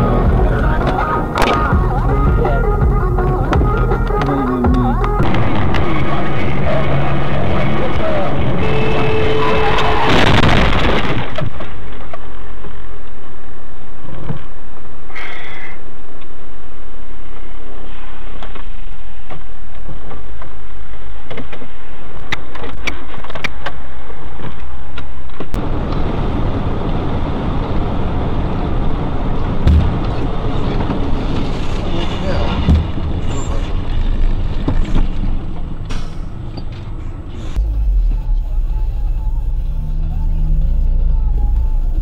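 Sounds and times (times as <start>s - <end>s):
truck engine rumbling: 0.0s - 12.6s, 25.4s - 42.0s
car engine and road noise: 0.0s - 42.0s
loud burst of noise: 5.2s - 12.6s, 37.4s - 42.0s.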